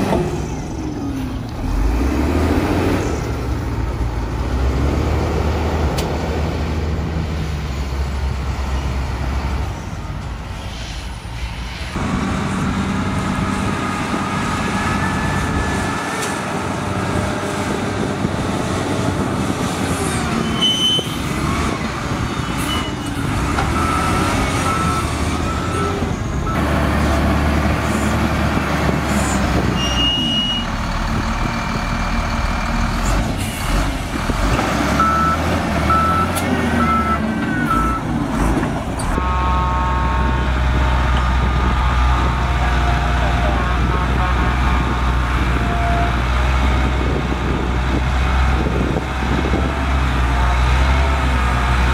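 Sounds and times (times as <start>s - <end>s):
dump truck engine running: 0.0s - 10.5s, 11.9s - 51.9s
wheel loader diesel engine: 0.0s - 51.9s
reversing alarm beeps: 35.0s - 38.0s.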